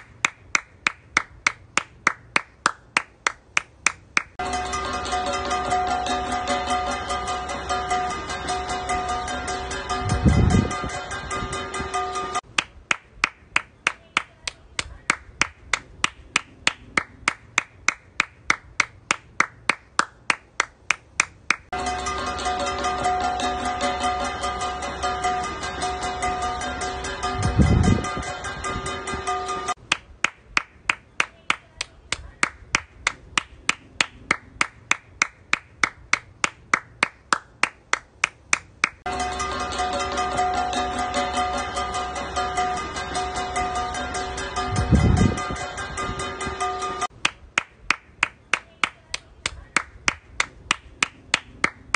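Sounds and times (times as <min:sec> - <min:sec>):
person clapping hands: 0:00.0 - 0:04.4, 0:12.5 - 0:21.7, 0:29.9 - 0:39.0, 0:47.2 - 0:51.9.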